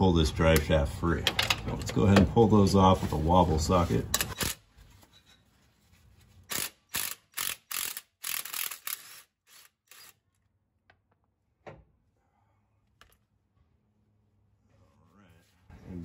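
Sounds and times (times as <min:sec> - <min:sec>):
impact wrench bursts: 0:06.5 - 0:10.2.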